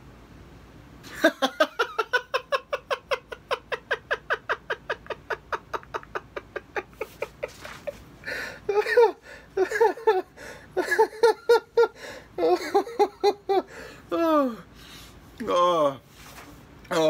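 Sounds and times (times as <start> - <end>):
man laughing hard: 1.1 - 14.6.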